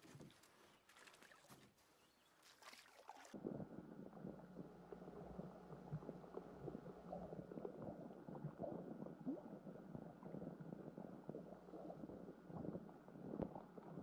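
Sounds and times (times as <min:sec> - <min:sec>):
muffled underwater rumble: 0:03.4 - 0:14.0
underwater crackles and ticks: 0:03.4 - 0:14.0.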